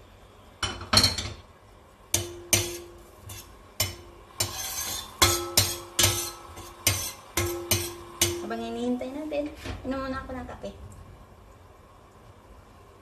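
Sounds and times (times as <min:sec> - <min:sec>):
metal spatula clanking on frying pan: 0:02.1 - 0:08.5.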